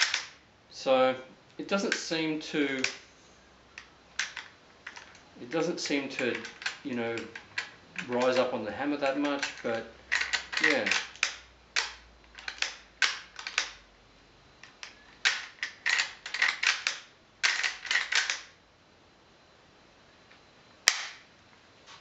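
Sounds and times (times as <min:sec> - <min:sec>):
rifle lever action clicking: 0:09.2 - 0:13.7.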